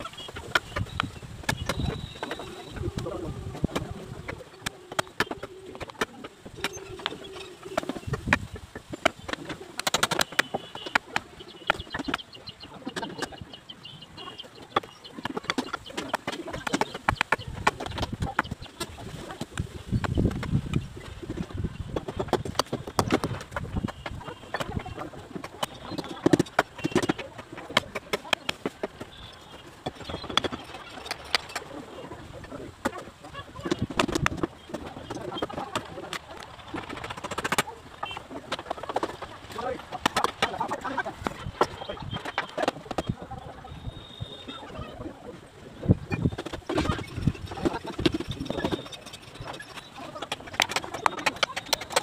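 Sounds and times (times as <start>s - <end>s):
wooden poles and bricks clattering: 0.0s - 44.9s, 45.8s - 52.0s
birds calling: 0.0s - 52.0s.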